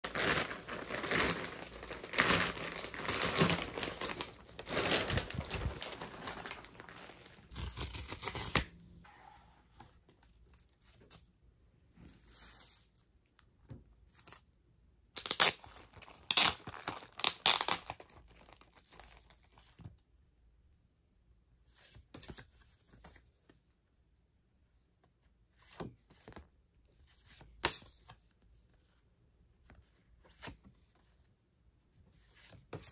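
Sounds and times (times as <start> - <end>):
packaging torn and crinkled: 0.0 - 8.7, 15.2 - 18.7
rustling and handling: 0.0 - 14.5.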